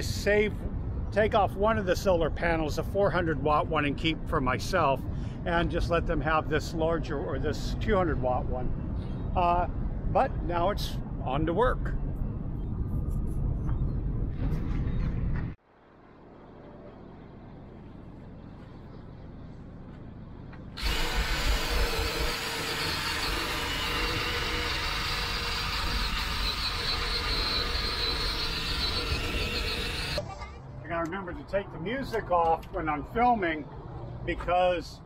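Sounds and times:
low rumble: 8.1 - 22.1
drill grinding paint off metal: 20.8 - 30.2.

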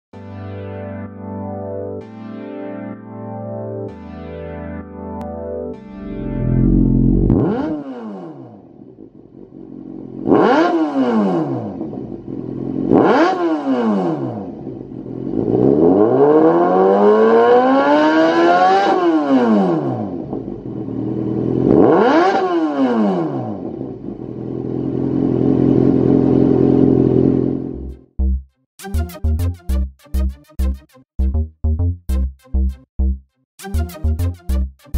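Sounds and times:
motorcycle engine revving: 6.3 - 27.9.

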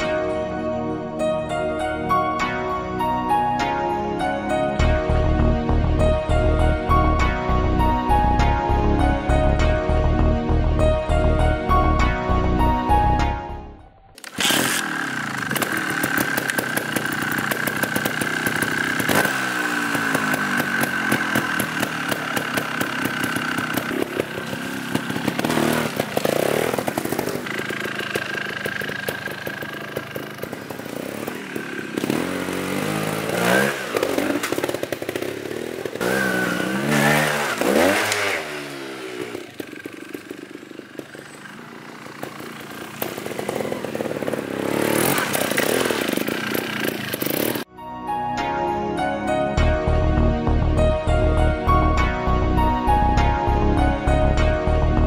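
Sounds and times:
motorcycle engine revving: 14.1 - 47.7.

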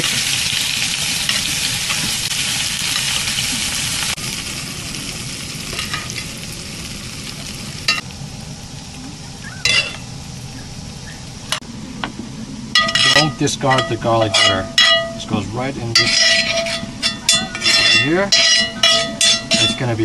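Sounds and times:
butter sizzling in a skillet: 0.0 - 11.6
metal spoon clinking on pan: 5.7 - 6.2, 9.6 - 10.0, 12.8 - 15.2, 16.0 - 20.0.

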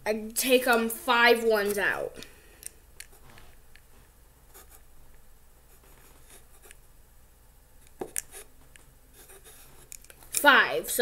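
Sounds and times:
pen scratching on paper: 4.5 - 4.8, 9.2 - 9.9.

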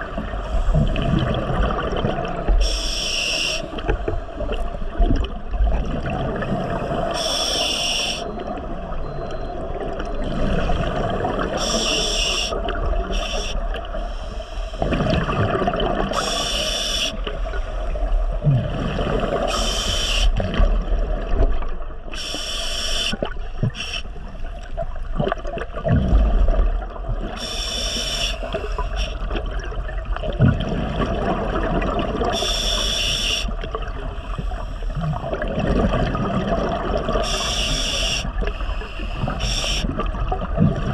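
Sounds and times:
gurgling bubbles: 0.0 - 14.0, 14.7 - 22.3, 23.1 - 40.9
regulator breathing hiss: 2.6 - 3.8, 7.1 - 8.3, 11.6 - 14.8, 16.2 - 17.8, 19.5 - 20.4, 22.1 - 24.1, 27.4 - 29.2, 32.4 - 33.5, 37.2 - 39.9.

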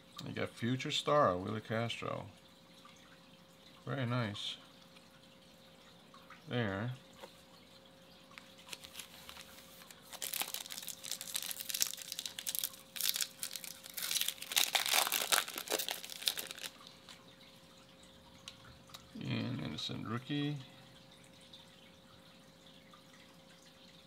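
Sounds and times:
foil wrapper tearing and crinkling: 8.6 - 17.0.

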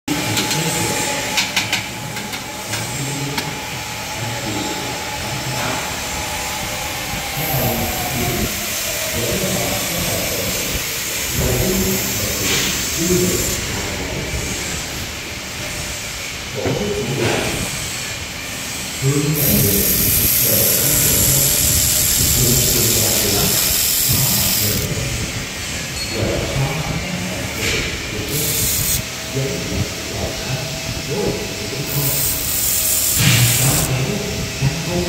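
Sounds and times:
laser welder hissing: 17.7 - 25.9, 27.4 - 29.4, 31.0 - 34.4.

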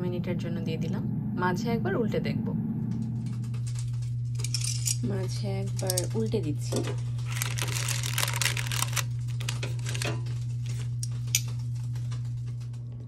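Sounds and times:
steady low hum: 0.0 - 13.0
paper crinkling and rustling: 7.1 - 11.0.

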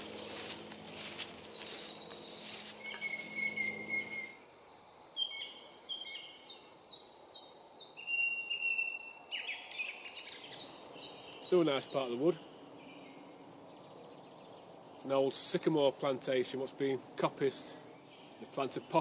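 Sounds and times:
soft footsteps: 0.0 - 4.4
low steady hum: 0.0 - 5.8
bird chirping high notes: 0.9 - 6.5
bird long thin whistle: 2.8 - 4.4.

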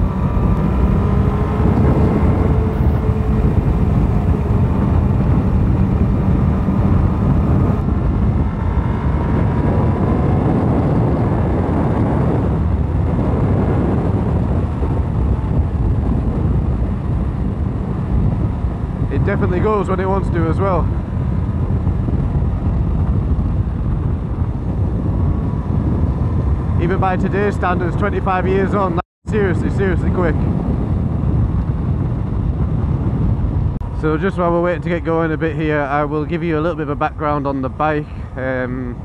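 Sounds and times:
motorcycle engine running: 0.0 - 19.4
wind rush over microphone: 0.0 - 39.0.

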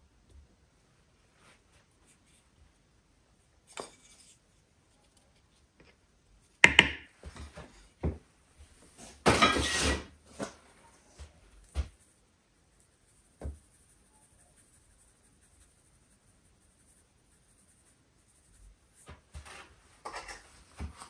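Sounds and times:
noisy scraping: 9.0 - 10.5
dishes and utensils clinking: 9.3 - 10.1, 20.0 - 20.5.

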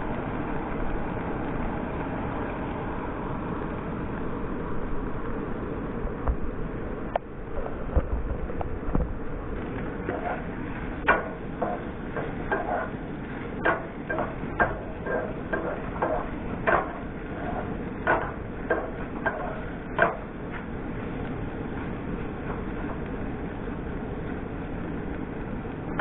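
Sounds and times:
wooden spatula scraping a pan: 10.0 - 23.1.

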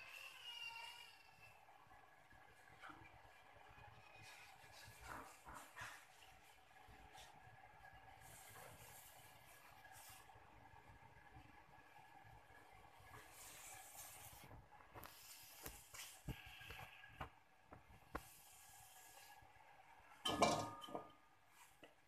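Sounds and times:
dishes clattering: 20.2 - 21.1
light kitchen clicks and knocks: 20.2 - 21.1.

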